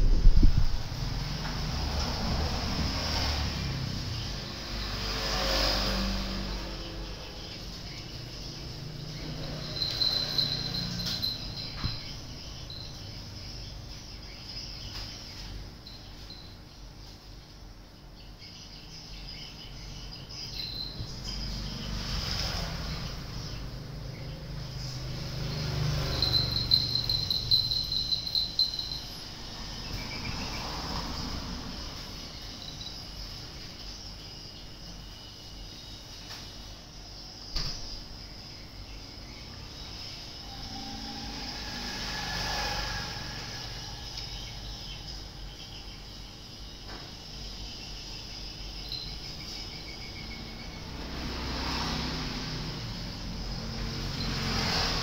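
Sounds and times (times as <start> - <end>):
vehicle engine: 0.0 - 14.2, 20.5 - 34.0, 39.2 - 47.4, 48.8 - 55.0
high insect hum: 0.0 - 55.0
pulsing insect trill: 0.3 - 16.9, 18.5 - 55.0
faint high chirping: 6.0 - 55.0.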